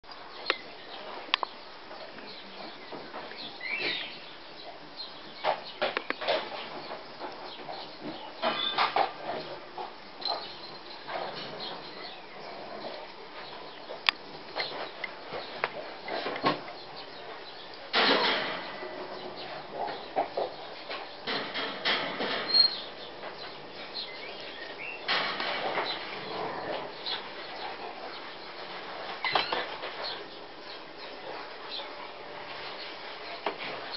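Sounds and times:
rustling and scuffling: 5.0s - 33.9s
puppies yipping and squeaking: 8.4s - 9.0s, 22.5s - 22.9s, 29.2s - 30.2s.

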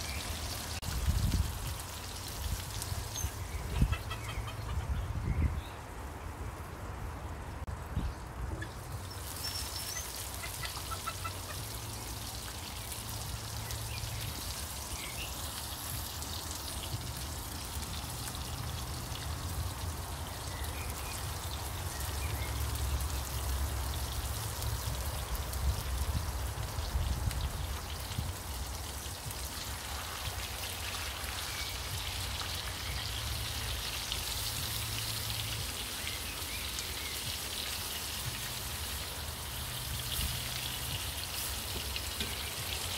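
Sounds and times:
steaks sizzling in a skillet: 8.9s - 42.9s.

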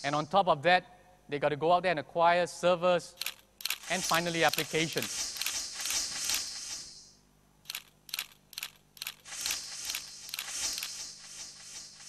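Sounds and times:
high shimmering hiss: 3.8s - 7.2s, 9.2s - 12.0s.

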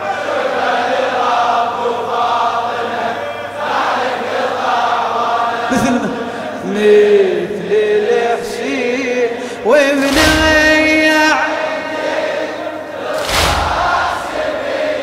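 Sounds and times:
man chanting a lament: 5.7s - 12.9s.

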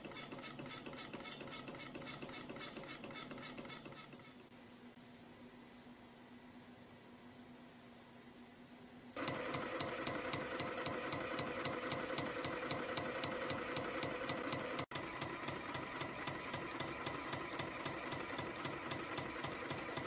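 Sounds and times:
machine rapid clatter: 0.0s - 4.4s, 9.2s - 20.0s.

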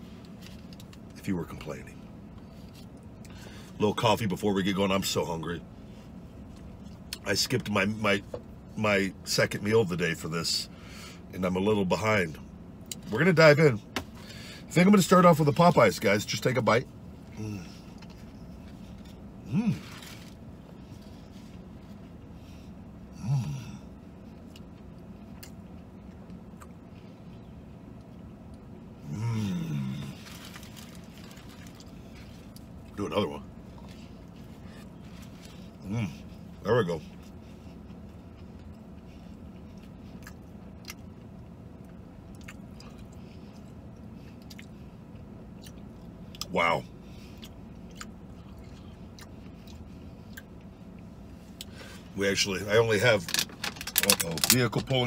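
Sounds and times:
steady low hum: 0.0s - 55.0s
man humming mmm: 19.4s - 19.9s, 23.1s - 23.9s, 29.0s - 30.2s
chewing: 37.1s - 46.5s, 47.3s - 50.7s.

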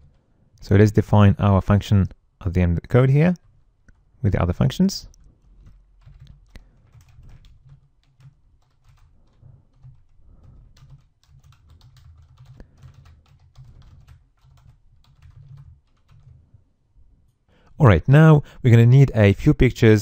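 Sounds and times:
typing on keyboard: 5.1s - 16.4s.

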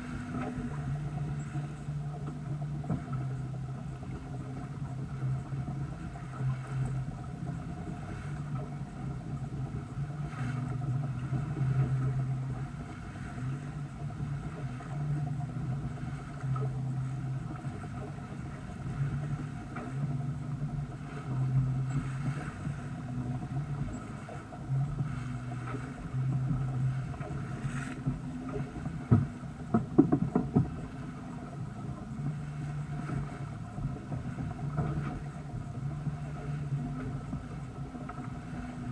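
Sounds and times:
low hum: 0.0s - 38.9s
water splashing along hull: 0.0s - 38.9s
sharp clicks and knocks: 29.1s - 30.8s.

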